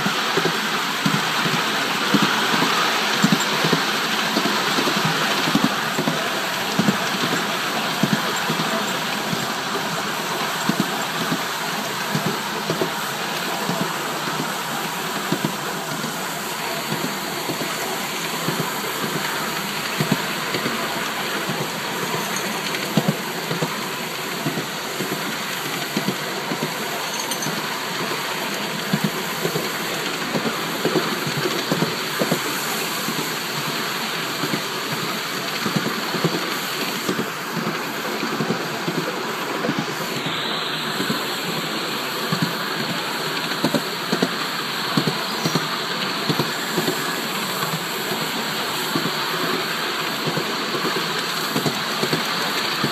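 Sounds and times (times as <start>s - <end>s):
small wheels clattering on track: 0.0s - 52.9s
steam hissing: 0.0s - 52.9s.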